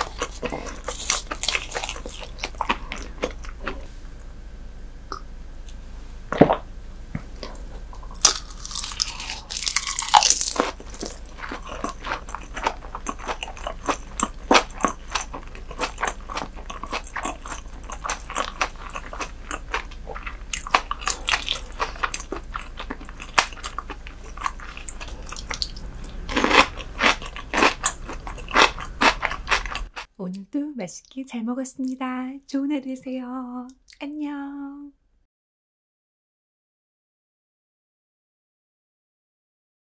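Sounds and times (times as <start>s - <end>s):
wet chewing and mouth clicks: 0.0s - 3.9s, 7.4s - 30.1s.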